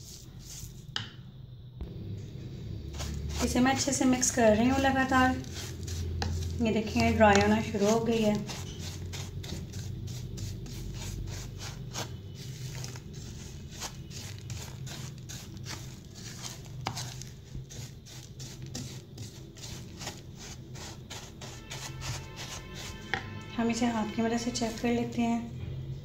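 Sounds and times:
metal spoon scraping a dish: 0:02.9 - 0:25.2.

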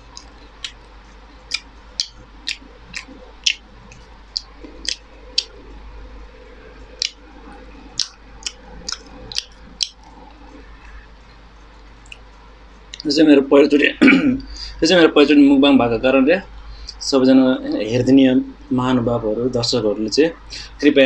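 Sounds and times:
person chewing crunchy food: 0:00.0 - 0:05.8, 0:06.8 - 0:13.1.

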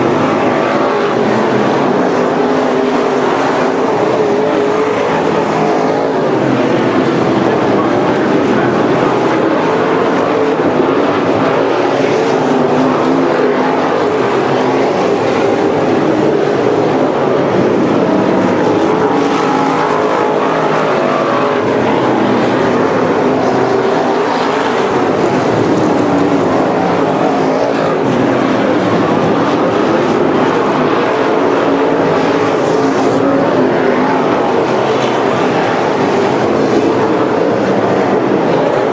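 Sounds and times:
race car engines droning: 0:00.0 - 0:38.9.

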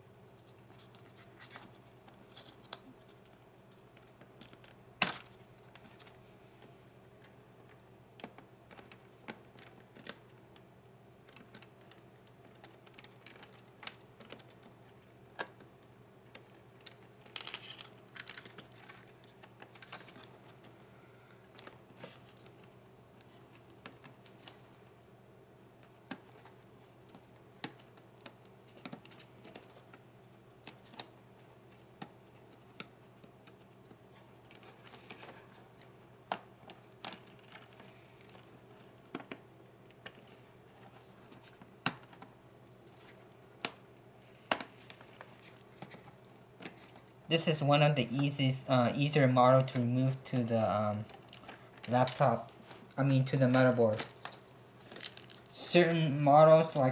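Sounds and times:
rustling: 0:48.2 - 0:56.9.

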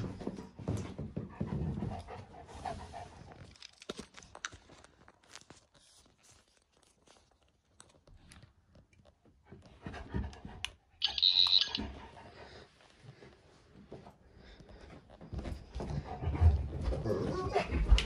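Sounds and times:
dog panting: 0:00.0 - 0:03.6, 0:09.4 - 0:11.2, 0:11.8 - 0:18.0.

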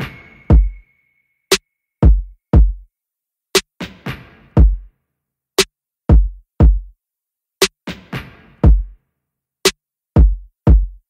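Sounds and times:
electronic drum-machine beat: 0:00.0 - 0:00.8, 0:01.5 - 0:02.9, 0:03.6 - 0:04.9, 0:06.1 - 0:07.0, 0:07.6 - 0:09.0, 0:10.2 - 0:11.0.

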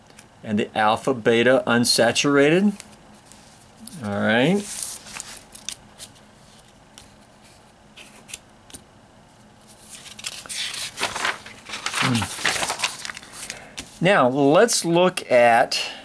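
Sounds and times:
paper page rustling: 0:02.7 - 0:08.8, 0:09.6 - 0:14.0.

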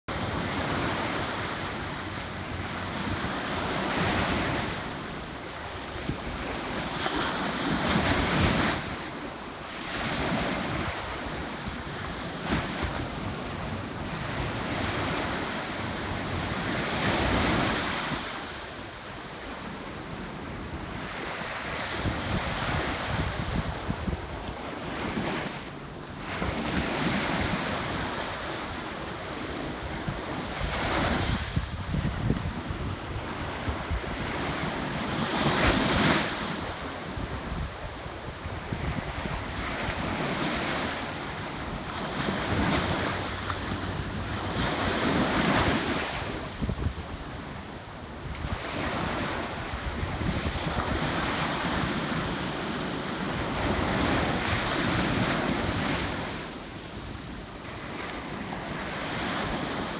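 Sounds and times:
wind rumbling on microphone: 0:00.1 - 0:25.6, 0:26.2 - 0:52.4.

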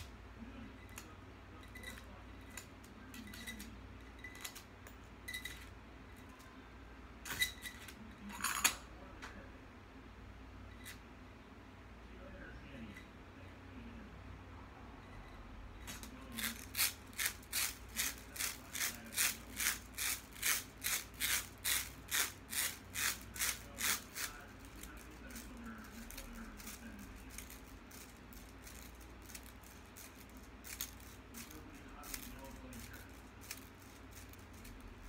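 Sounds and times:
handling of coils: 0:00.0 - 0:06.6, 0:15.0 - 0:35.0
plastic coils clacking: 0:15.9 - 0:35.0.

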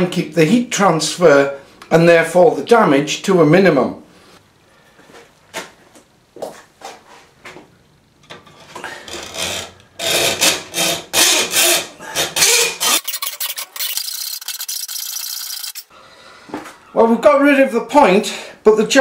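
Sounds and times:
hacksaw cutting steel: 0:09.1 - 0:15.9.

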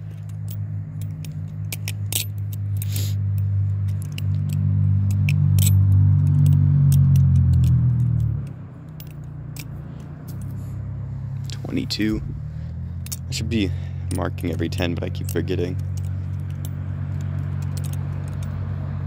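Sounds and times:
low engine drone: 0:00.0 - 0:19.0.

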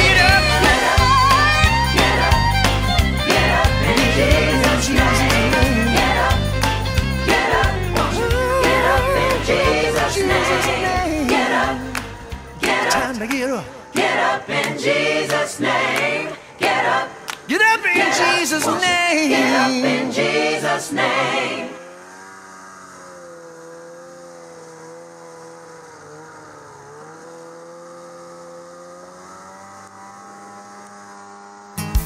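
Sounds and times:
gospel voices singing in harmony: 0:00.0 - 0:22.1.

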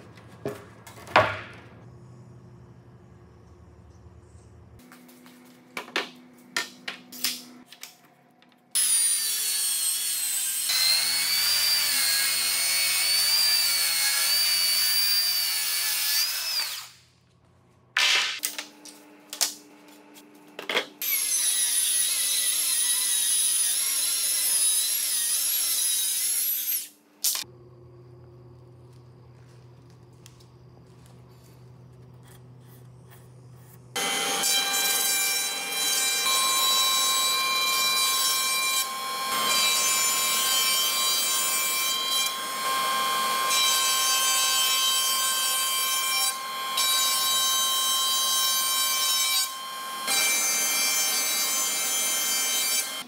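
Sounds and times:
track saw whining through wood: 0:08.8 - 0:17.0.

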